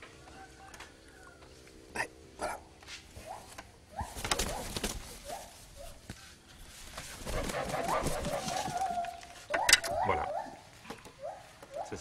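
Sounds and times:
dogs whining: 8.5 - 12.0.

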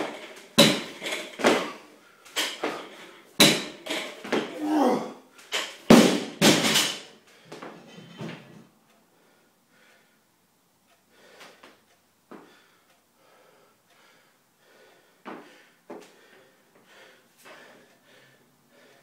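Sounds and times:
barbell clattering on floor: 0.0 - 1.8, 2.4 - 4.5, 5.5 - 8.6
faint breaths: 8.9 - 19.0.

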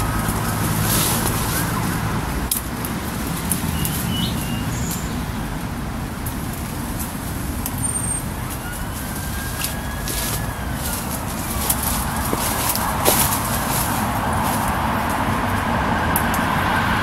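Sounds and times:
road traffic rumble: 0.0 - 17.0
bird chirps: 3.6 - 5.4.

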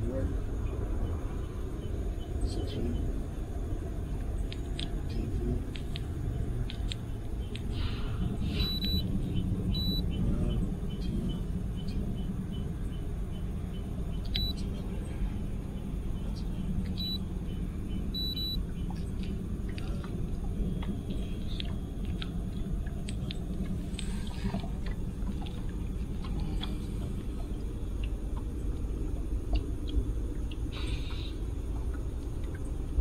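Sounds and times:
low rumble: 0.0 - 33.0
high electronic beeps: 8.5 - 9.1, 9.7 - 13.4, 14.2 - 14.7, 17.0 - 17.2, 18.1 - 18.6.

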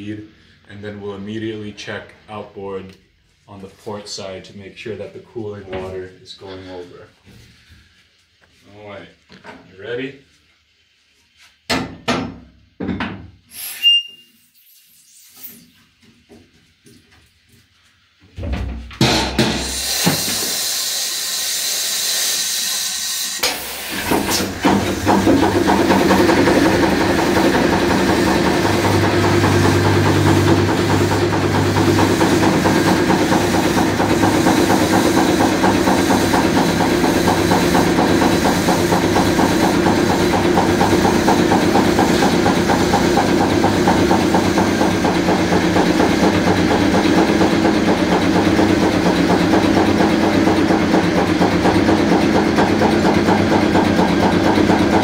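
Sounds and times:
compressed air hissing: 13.5 - 15.6, 19.4 - 25.3, 26.1 - 42.8
diesel engine running: 23.5 - 55.0.

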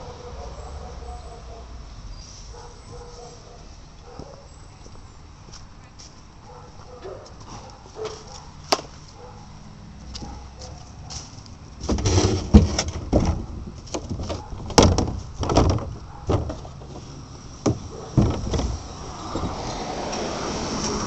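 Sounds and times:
thumps and knocks on plastic cart: 11.8 - 17.0, 17.6 - 18.8.

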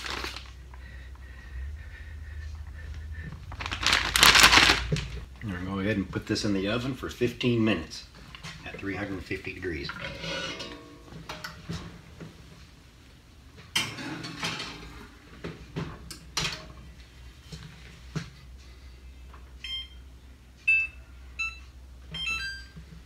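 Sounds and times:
skillet scraping on grates: 10.0 - 11.0.

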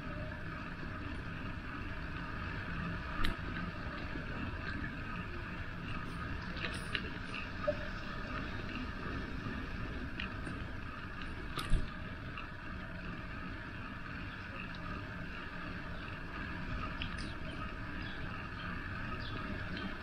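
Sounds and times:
bicycle tyre rumble: 0.0 - 20.0
faint bicycle clicks: 0.0 - 20.0
wind: 0.0 - 20.0.

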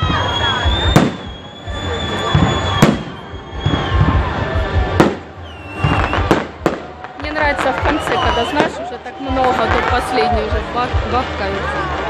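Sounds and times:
high fireworks whistles: 0.0 - 9.6
fireworks bursting: 0.0 - 11.3.

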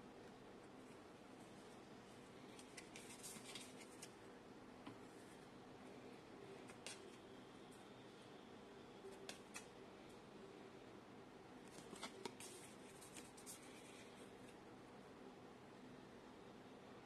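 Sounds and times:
cards brushing in fingers: 2.5 - 4.1, 11.8 - 14.1.

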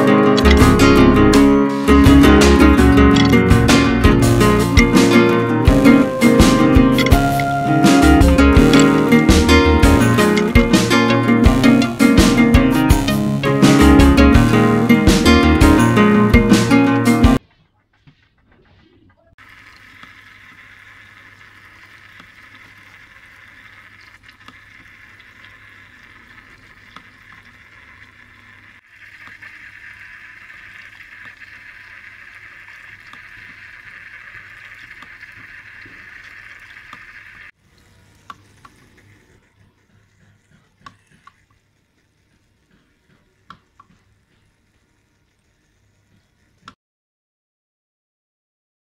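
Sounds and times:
water drips: 19.4 - 46.5
fountain water trickling and splashing: 19.4 - 46.6.

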